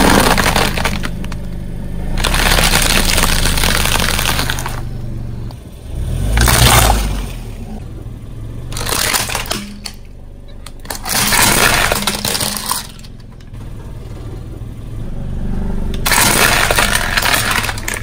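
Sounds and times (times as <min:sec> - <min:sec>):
plastic toy cracking and crunching: 0:00.0 - 0:01.5, 0:02.2 - 0:04.8, 0:08.7 - 0:10.0, 0:10.6 - 0:13.5, 0:16.0 - 0:18.0
low rumble of car: 0:00.0 - 0:18.0.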